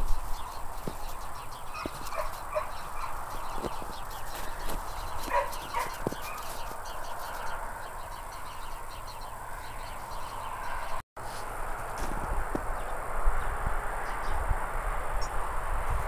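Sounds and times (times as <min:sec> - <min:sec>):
puppy yipping: 0:01.7 - 0:03.1, 0:05.2 - 0:06.6.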